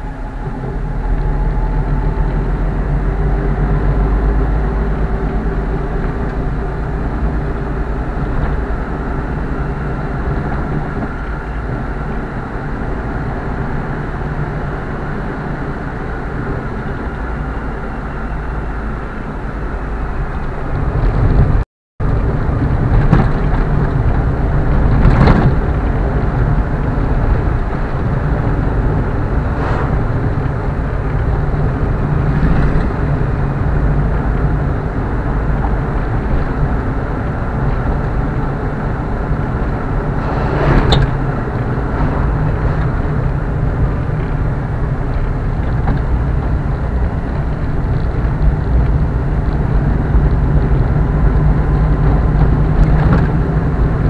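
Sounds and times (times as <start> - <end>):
car engine and road noise: 0.0 - 54.0.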